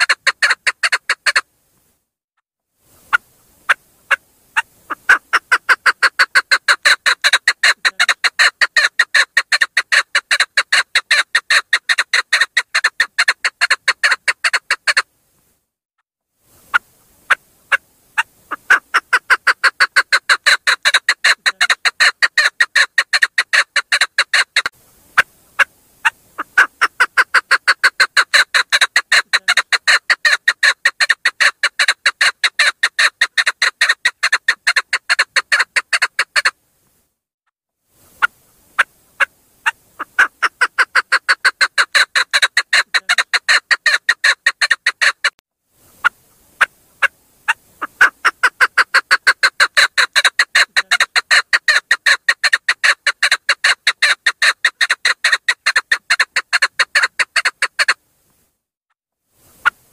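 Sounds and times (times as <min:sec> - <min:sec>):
partridge clucking call: 0:00.0 - 0:01.5, 0:03.0 - 0:15.1, 0:16.6 - 0:36.6, 0:38.2 - 0:45.4, 0:46.0 - 0:58.0.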